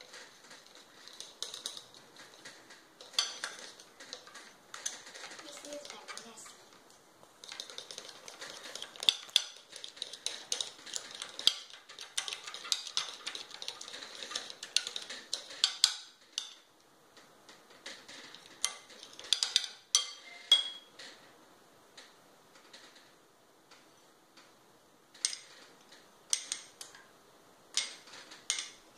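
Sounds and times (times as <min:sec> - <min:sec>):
fork clinking and scraping glass bowl: 0:03.0 - 0:06.3, 0:07.4 - 0:16.6.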